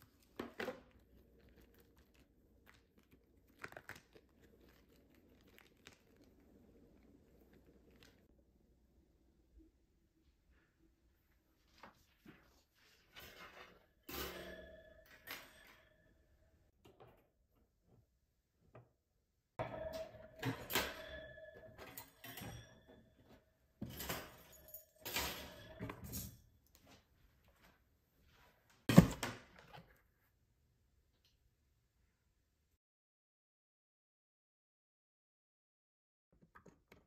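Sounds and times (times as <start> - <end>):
wire rack clinking and rattling: 13.2 - 16.0, 19.6 - 23.0, 23.8 - 26.4.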